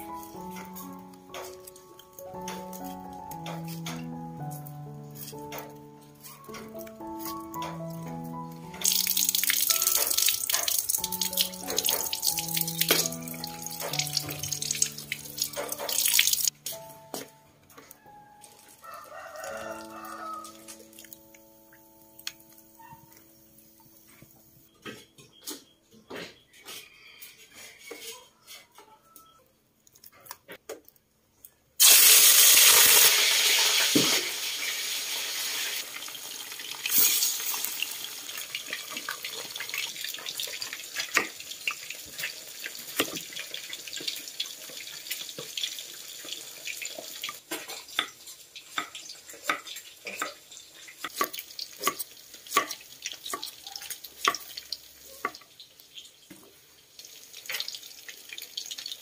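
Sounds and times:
hot wok hissing: 31.8 - 47.4.

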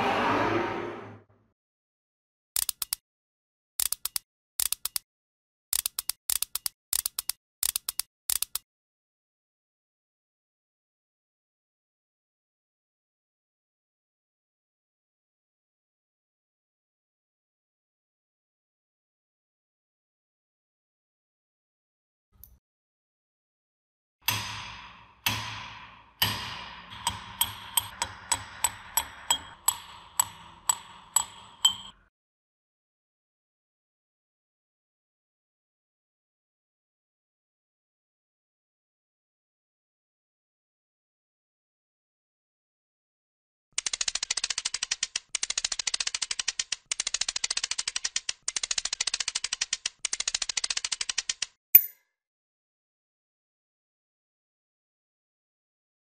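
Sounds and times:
hammer striking metal: 24.2 - 32.0, 51.8 - 52.0
rapid metallic clicking: 24.3 - 32.0.

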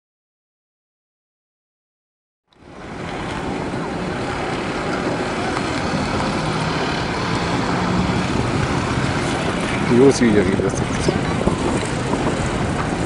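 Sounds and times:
car engine hum: 2.6 - 13.0
outdoor rushing noise: 2.6 - 13.0.

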